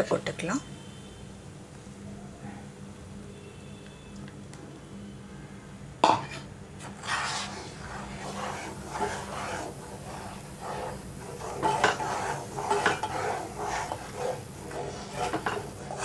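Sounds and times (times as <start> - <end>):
spatula scraping a saucepan: 6.1 - 16.0.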